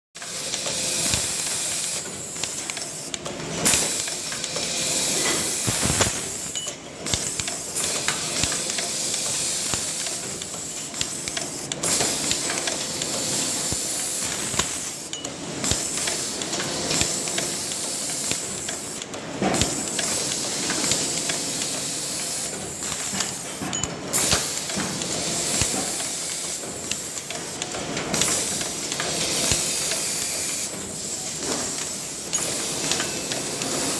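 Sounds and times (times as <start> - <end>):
machine arm clicks and knocks: 5.2 - 30.6.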